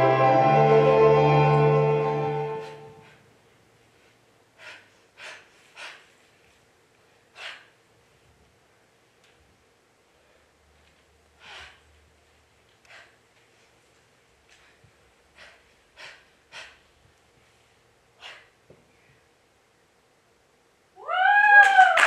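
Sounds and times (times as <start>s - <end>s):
soft instrumental music: 0.0s - 3.0s
breathy exhalations: 4.6s - 6.2s, 7.3s - 7.8s, 11.4s - 12.0s, 14.5s - 17.0s, 18.2s - 19.2s.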